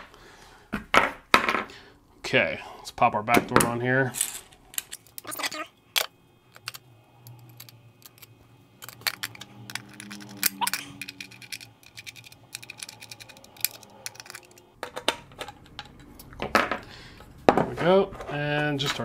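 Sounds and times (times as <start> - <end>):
tool turning screws clicking: 6.6 - 14.6.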